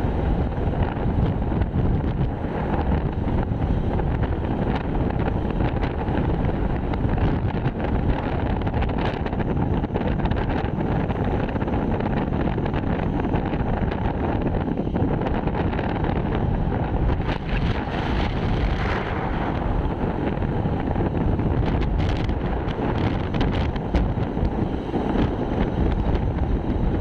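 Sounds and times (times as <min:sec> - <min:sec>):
road rumble: 0:00.0 - 0:27.0
wind buffeting microphone: 0:00.0 - 0:27.0.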